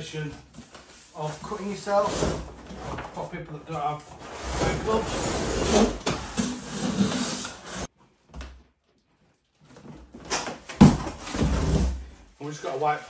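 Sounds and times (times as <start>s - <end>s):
cardboard box sliding and scraping: 4.2s - 7.9s.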